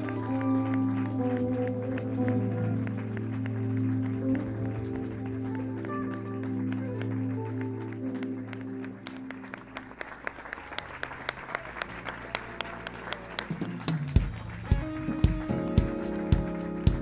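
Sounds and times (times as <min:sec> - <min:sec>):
music sustained chord: 0:00.0 - 0:10.2
hand claps: 0:00.0 - 0:17.0.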